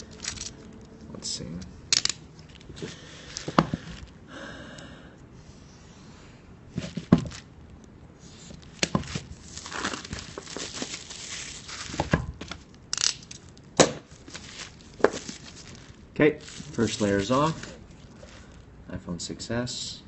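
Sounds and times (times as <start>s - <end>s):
plastic wrapping crinkling and tearing: 0.0s - 0.8s, 8.4s - 18.7s.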